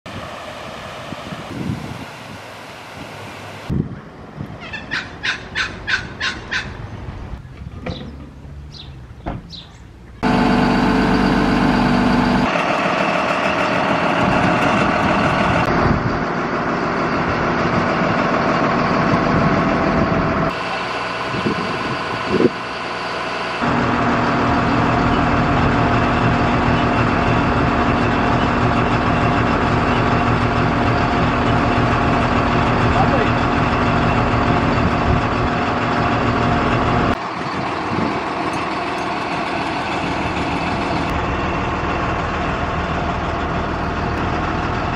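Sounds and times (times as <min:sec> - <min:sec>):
heavy engine running: 0:00.1 - 0:44.9.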